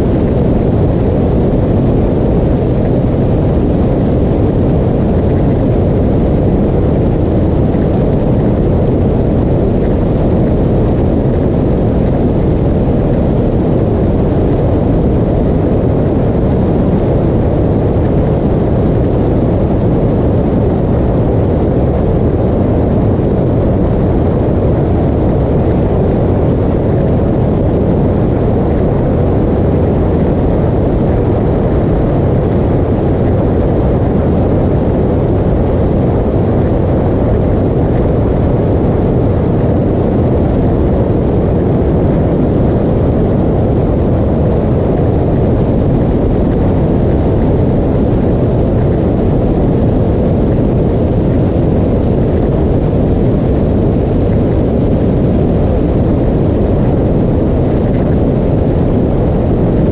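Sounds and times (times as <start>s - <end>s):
motorcycle road noise: 0.0s - 59.9s
wind rumble: 0.0s - 59.9s.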